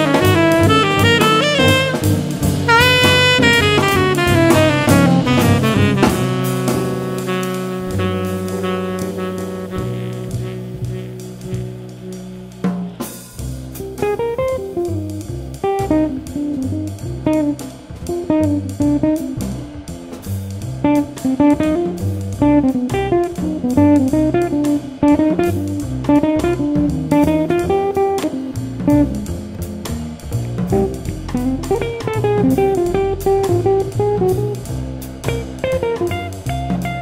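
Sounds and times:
drums with ticking cymbals: 0.0s - 37.0s
jazz guitar plucking fast notes: 0.0s - 37.0s
walking bass: 0.0s - 37.0s.

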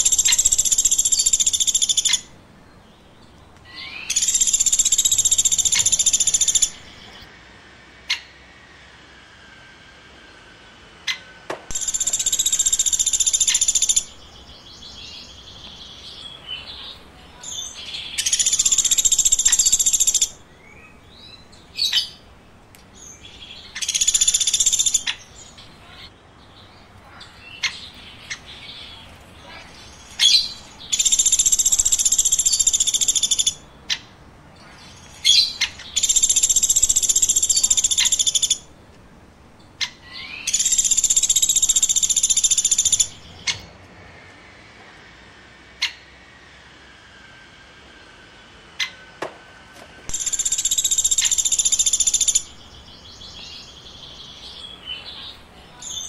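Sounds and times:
woodpecker trills: 3.6s - 7.2s, 11.1s - 14.2s, 16.7s - 26.0s, 27.0s - 34.1s, 34.7s - 38.7s, 50.1s - 53.5s.

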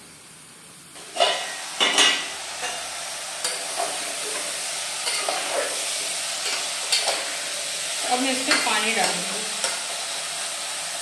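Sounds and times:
vegetables sizzling: 0.0s - 11.0s
metal lid clanks: 1.0s - 2.8s
metal spoon scraping pot: 1.0s - 2.8s.

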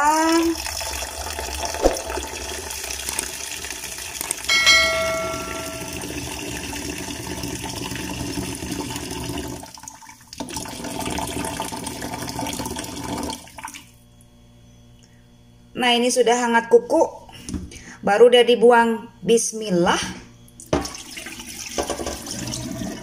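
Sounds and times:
ringing metallic clink: 4.5s - 6.2s
tap water running into saucepan: 5.6s - 13.8s, 20.7s - 23.0s.

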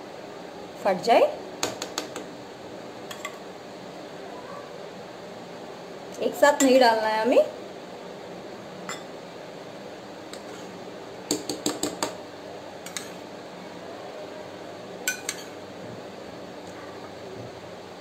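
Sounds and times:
metal spoon clinking on pot: 12.9s - 13.2s, 15.1s - 15.5s.

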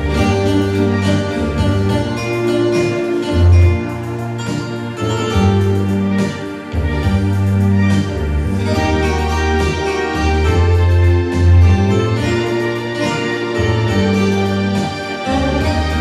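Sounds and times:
instrumental dance music: 0.0s - 16.0s.

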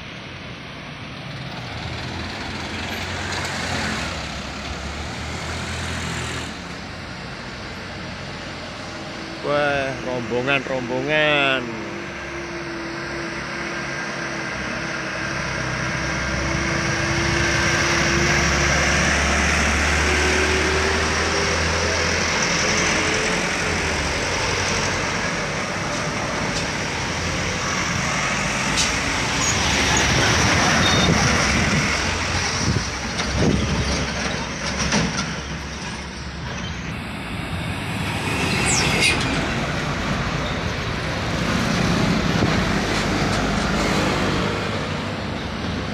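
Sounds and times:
trucks driving past: 0.0s - 45.9s
knocks from passing trucks: 28.6s - 36.1s.

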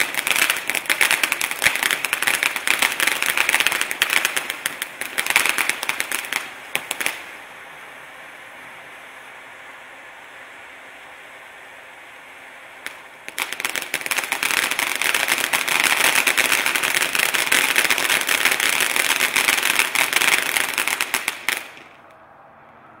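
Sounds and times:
firework fountain hissing: 0.0s - 22.2s
firework rapid crackling: 0.0s - 22.2s.

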